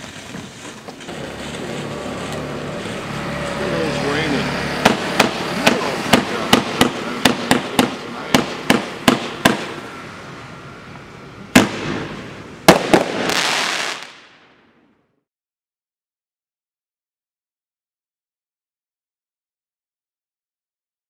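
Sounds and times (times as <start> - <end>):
dense firework crackle: 0.0 - 3.1, 4.8 - 10.0, 11.5 - 14.8
hissing firework fountain: 0.0 - 14.5
loud firework bangs: 4.6 - 10.1, 11.5 - 14.7
sharp firework pops: 4.8 - 9.8, 11.6 - 14.3.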